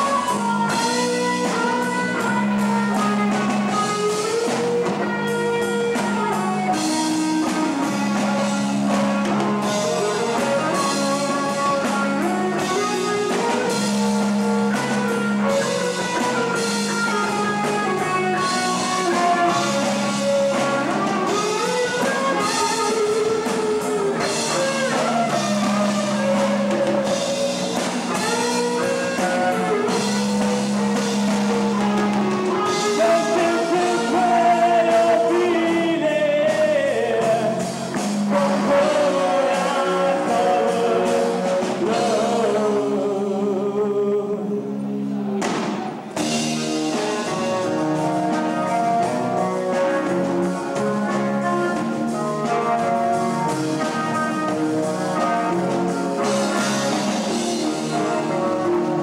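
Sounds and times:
electric guitar lead line: 0.0s - 59.0s
live rock band playing: 0.0s - 59.0s.

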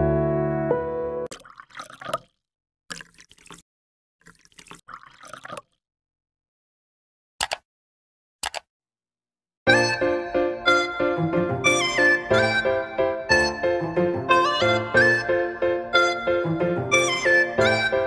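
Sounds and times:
music: 0.0s - 1.3s, 9.7s - 18.0s
short sharp drips: 1.3s - 3.6s, 4.2s - 5.8s
water splashing and dripping: 1.3s - 3.6s, 4.2s - 5.8s.

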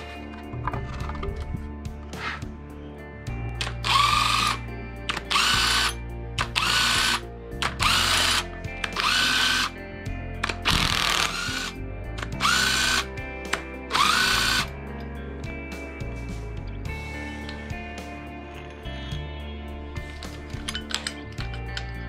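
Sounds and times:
cordless drill whining: 3.6s - 9.8s, 10.4s - 14.7s.

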